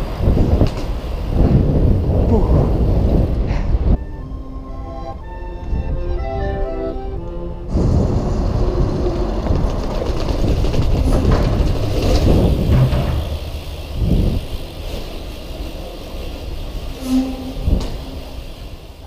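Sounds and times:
bike tyres rumbling on bricks: 0.0s - 3.9s, 7.7s - 19.0s.

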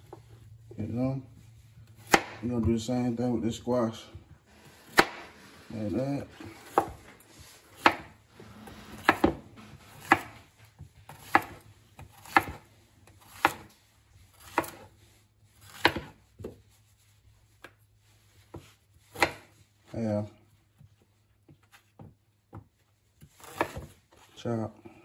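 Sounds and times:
knife slicing onto cutting board: 15.6s - 16.6s.

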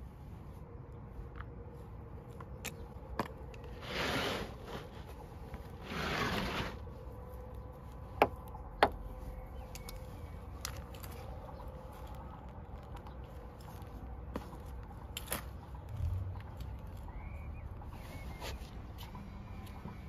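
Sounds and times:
trowel scraping soil: 3.7s - 6.9s.

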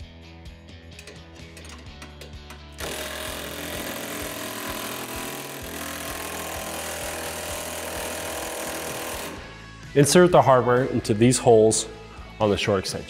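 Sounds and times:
background music: 0.0s - 13.0s
impact driver hammering: 1.0s - 9.5s.

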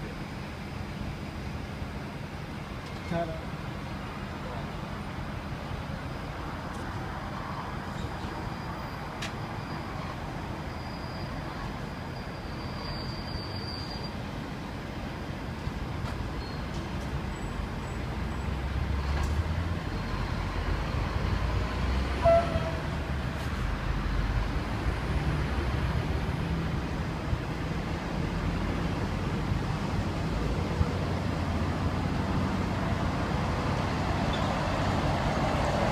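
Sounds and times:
diesel locomotive engines running: 0.0s - 35.9s
short loud locomotive toot: 22.2s - 22.9s.

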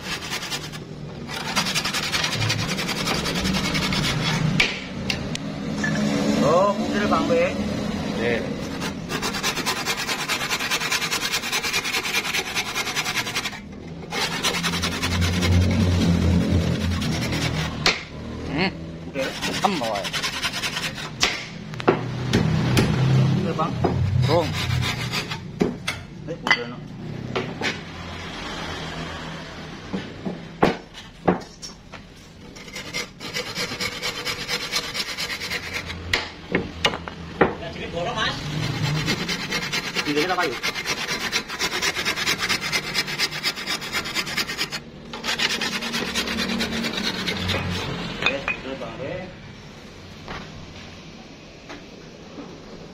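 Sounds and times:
handsaw cutting wood: 0.0s - 4.8s, 8.6s - 18.1s, 19.2s - 21.5s, 24.1s - 25.5s, 32.5s - 36.1s, 38.4s - 48.0s
sharp knocks: 4.6s - 5.2s, 17.8s - 18.1s
low drone: 14.2s - 19.1s.

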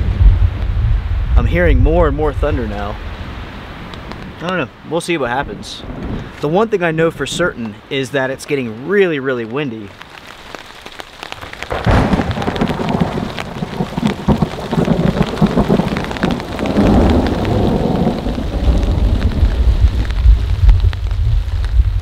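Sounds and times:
thunder rumbling: 0.0s - 3.5s, 11.4s - 22.0s
rain pattering on a tarp: 1.4s - 22.0s.

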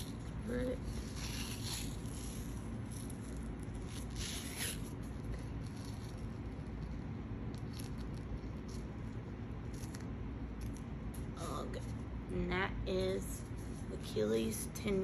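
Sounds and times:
tape peeling off roll: 0.0s - 9.0s
tape crackling: 0.0s - 12.0s
low background hum: 0.0s - 15.0s.

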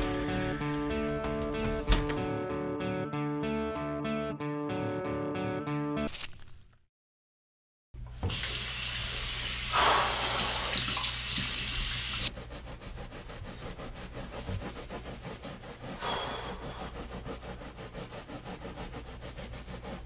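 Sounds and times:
faucet running into sink: 8.1s - 12.3s.

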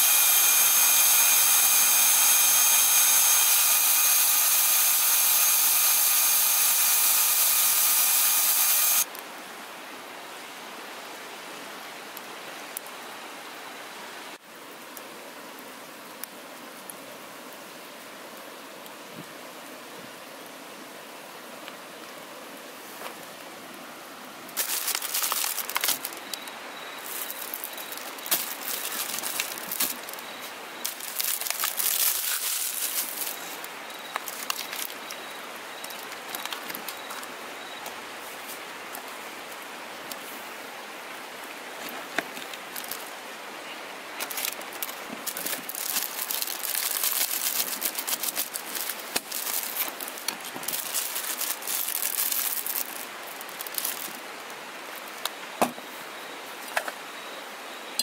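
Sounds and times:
plastic packaging crinkling: 24.6s - 26.4s, 27.0s - 35.2s, 42.7s - 43.1s, 44.2s - 54.2s.

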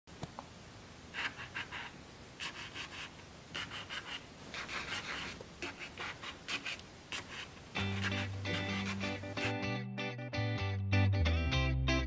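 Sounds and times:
guitar tune: 7.8s - 12.0s.

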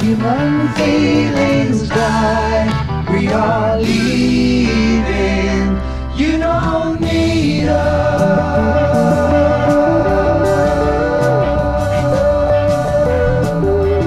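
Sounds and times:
song with sung vocals: 0.0s - 14.0s.

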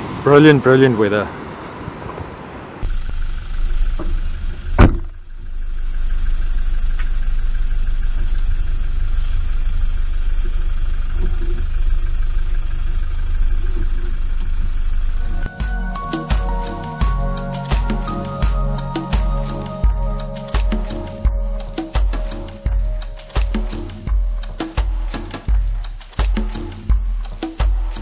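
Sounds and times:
diesel engine idling: 2.8s - 28.0s
sharp thump: 3.9s - 5.2s.

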